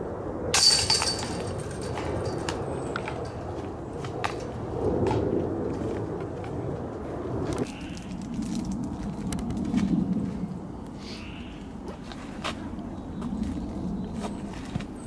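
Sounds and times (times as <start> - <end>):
disc crashing into metal chains: 0.6 - 3.2
light chain clinks: 0.6 - 3.4, 4.0 - 4.5.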